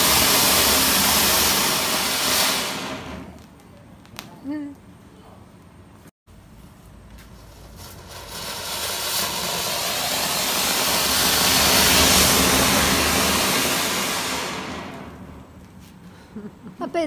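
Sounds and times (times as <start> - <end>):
firework fountain hissing: 0.0 - 3.5, 7.2 - 16.5.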